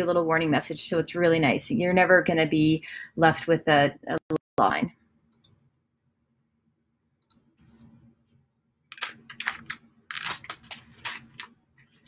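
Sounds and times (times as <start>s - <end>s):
computer mouse clicks: 5.3s - 5.6s, 7.2s - 7.7s.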